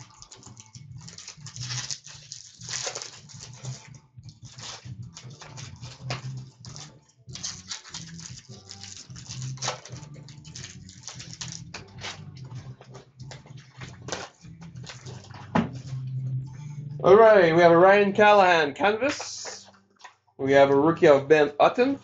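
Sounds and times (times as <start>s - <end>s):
wrappers torn and crinkled: 0.0s - 12.4s
cards rustling and sliding: 0.4s - 16.0s.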